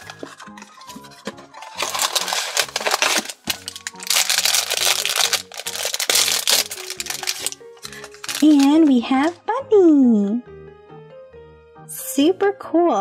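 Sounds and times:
background music: 0:00.0 - 0:13.0
foil bag crinkling and tearing: 0:01.6 - 0:09.4.

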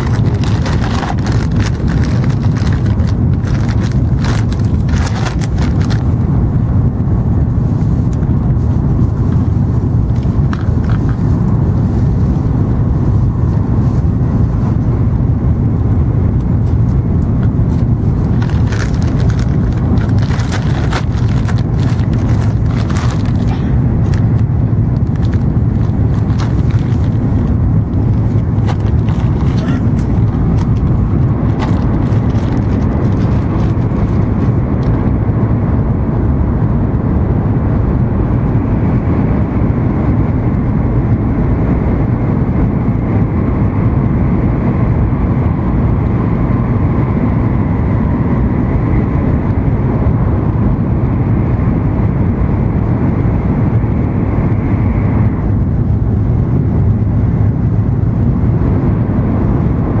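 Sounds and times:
train interior rumble: 0:00.0 - 1:00.0.

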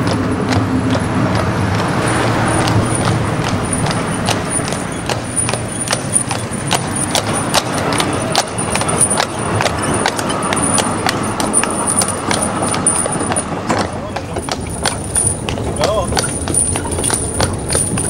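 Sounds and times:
horse hooves clip-clopping on road: 0:00.0 - 0:02.0, 0:05.1 - 0:18.0.

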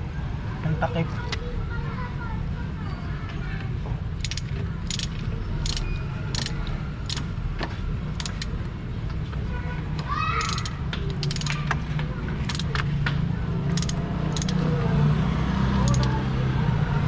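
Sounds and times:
ratchet wrench clicking: 0:04.2 - 0:07.3, 0:08.1 - 0:08.5, 0:10.4 - 0:11.8, 0:12.4 - 0:12.9, 0:13.7 - 0:14.7, 0:15.8 - 0:16.2.

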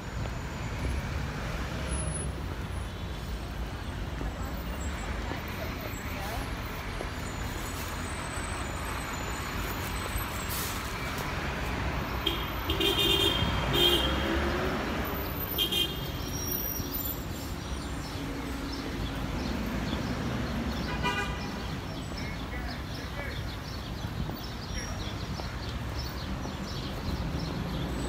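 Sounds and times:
street traffic: 0:00.0 - 0:28.0
bus passing close: 0:03.8 - 0:15.5.

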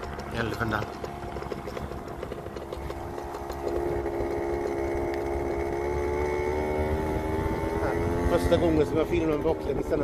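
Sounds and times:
ride-on vehicle motor whine: 0:00.0 - 0:10.0.

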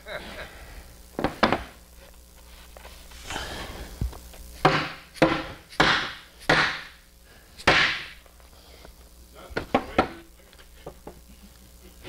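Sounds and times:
hammer knocking wooden cabinet: 0:04.6 - 0:06.8.

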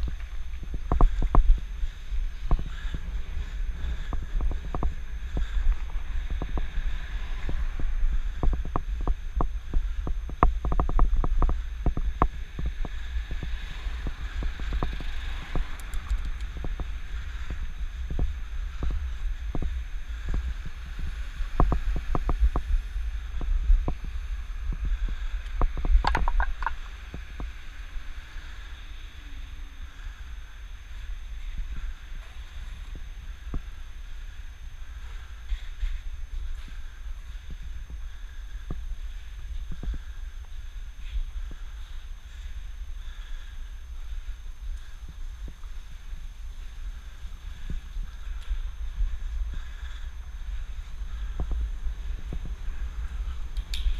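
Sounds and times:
bicycle clicks and rattles: 0:00.0 - 0:20.6, 0:25.0 - 0:27.6, 0:38.6 - 0:53.9
wind and road rumble: 0:00.0 - 0:53.9.

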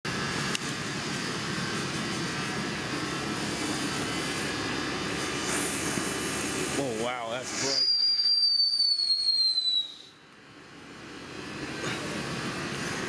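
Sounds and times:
firework fuse hissing: 0:00.1 - 0:10.2.

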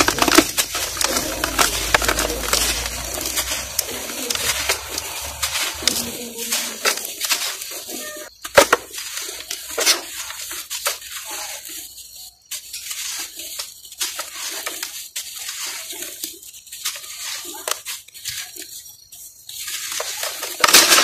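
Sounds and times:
dirt crumbs trickling: 0:00.0 - 0:21.0
dry dirt crunching by hand: 0:00.0 - 0:21.0.

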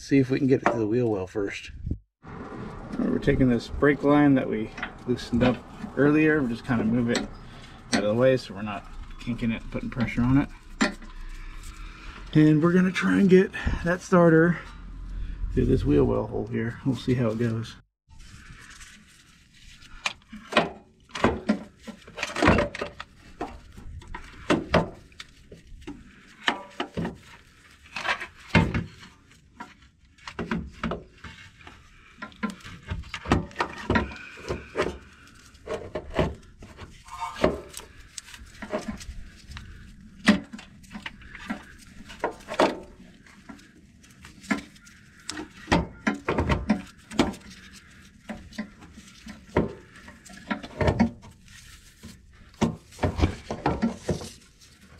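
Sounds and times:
light metal scrapes: 0:02.4 - 0:13.4.

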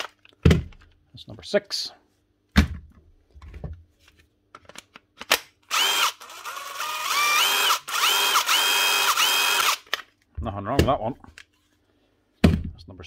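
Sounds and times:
impact driver motor whine: 0:05.7 - 0:09.8.

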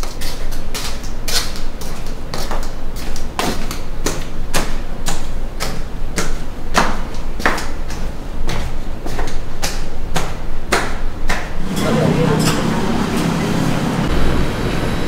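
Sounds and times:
hard-soled footsteps on concrete: 0:00.0 - 0:11.6.

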